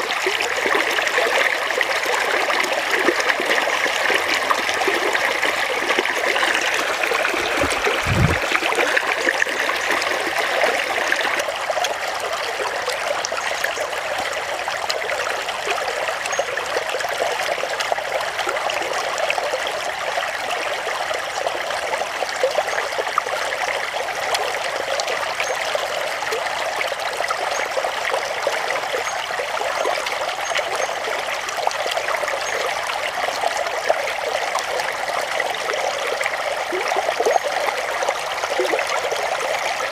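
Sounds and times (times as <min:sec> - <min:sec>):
stream water trickling: 0:00.0 - 0:39.9
low thumps: 0:07.4 - 0:08.6.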